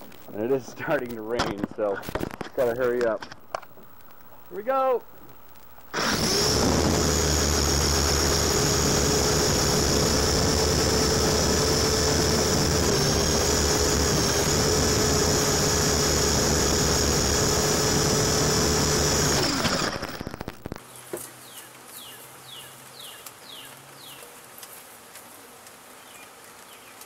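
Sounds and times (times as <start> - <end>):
rc helicopter whine and buzz: 5.9 - 20.8.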